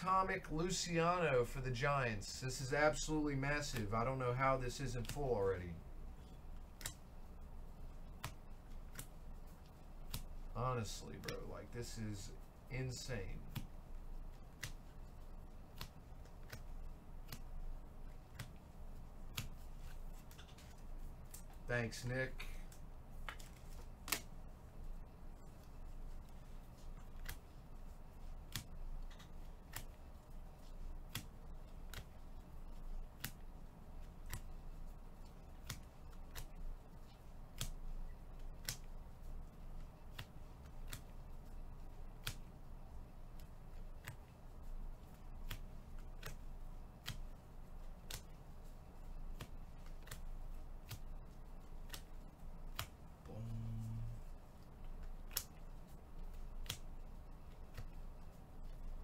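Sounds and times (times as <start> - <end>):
low steady hum: 0.0 - 59.0
cards snapping off a stack: 23.2 - 24.3, 51.8 - 52.9.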